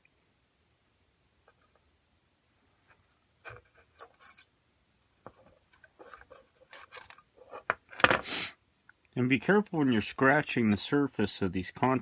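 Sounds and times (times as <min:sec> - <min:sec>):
hand tools ticking and scraping: 0:03.5 - 0:07.7.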